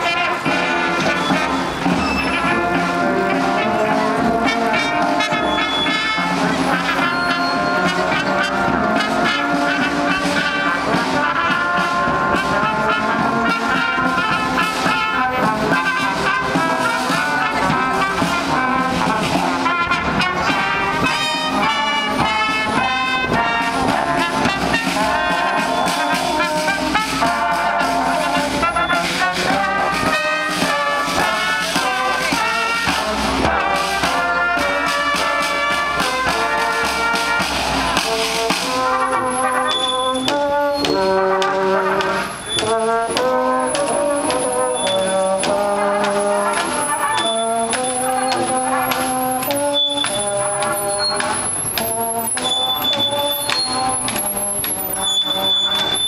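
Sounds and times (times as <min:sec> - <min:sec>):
drum: 0:00.0 - 0:39.4
marching brass band playing: 0:00.0 - 0:56.0.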